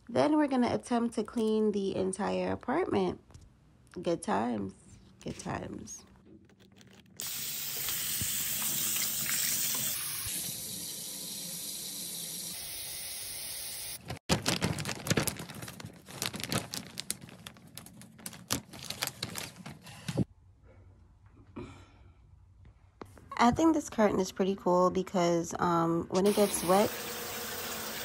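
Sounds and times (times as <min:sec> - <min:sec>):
faucet running into sink: 0:07.2 - 0:12.8, 0:26.3 - 0:28.0
plastic shower curtain crinkling: 0:14.3 - 0:20.1.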